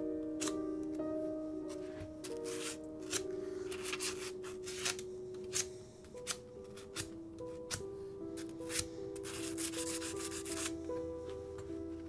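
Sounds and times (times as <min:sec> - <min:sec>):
music of slow held notes: 0:00.0 - 0:12.0.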